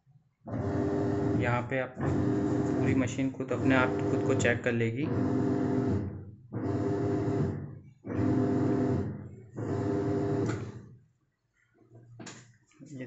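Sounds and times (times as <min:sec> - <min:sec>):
washing machine motor agitating water: 0:00.5 - 0:10.8.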